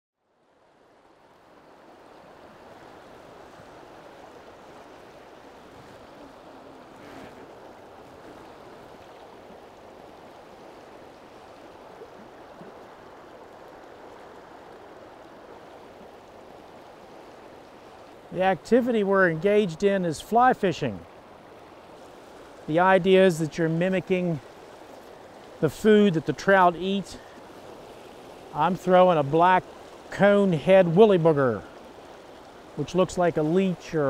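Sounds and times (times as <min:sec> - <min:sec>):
river water rushing: 0:00.3 - 0:34.0.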